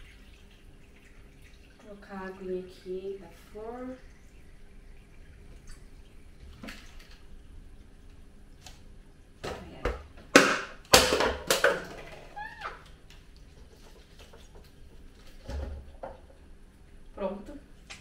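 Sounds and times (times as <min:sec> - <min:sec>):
water splashing in sink: 0:00.0 - 0:07.4.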